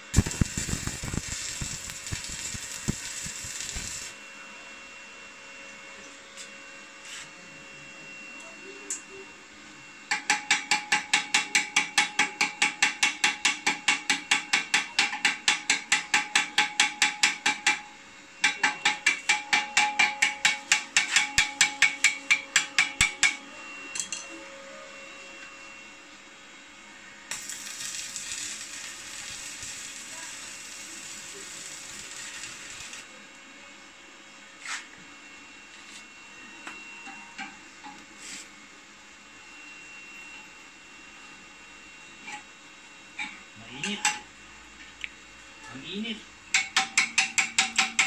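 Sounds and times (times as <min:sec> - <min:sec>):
welding arc hissing: 0:00.0 - 0:04.2, 0:27.3 - 0:33.1.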